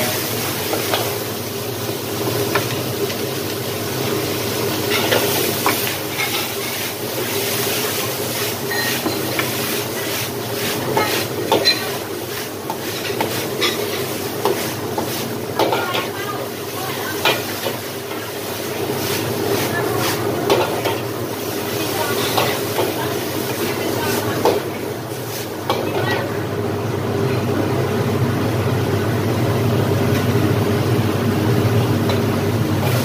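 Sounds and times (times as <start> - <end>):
gas burner rushing: 0.0 - 26.4
food sizzling: 0.0 - 26.6, 30.0 - 33.0.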